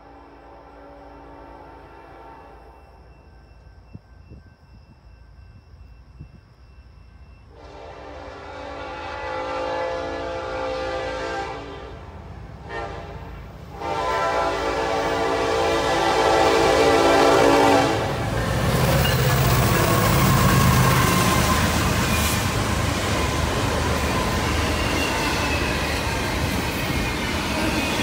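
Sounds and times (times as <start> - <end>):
locomotive air horn: 0.0 - 2.8, 7.5 - 18.3
low train rumble: 0.0 - 28.0.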